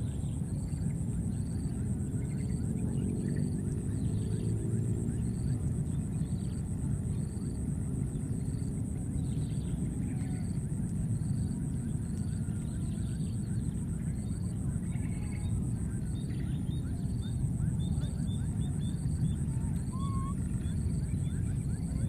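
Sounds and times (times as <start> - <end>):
steady low rumble: 0.0 - 22.0
faint bird calls: 9.2 - 10.6, 14.7 - 22.0.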